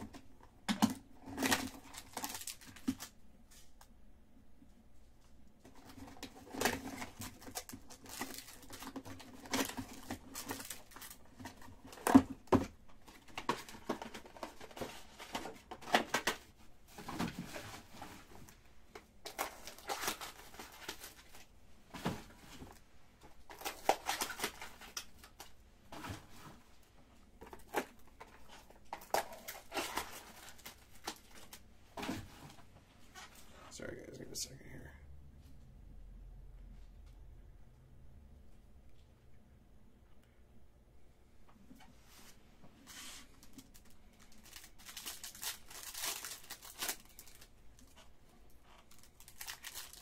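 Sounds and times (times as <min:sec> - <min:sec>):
plastic packaging crinkling: 0:00.8 - 0:03.2, 0:05.7 - 0:26.4, 0:27.4 - 0:31.6, 0:43.0 - 0:50.0.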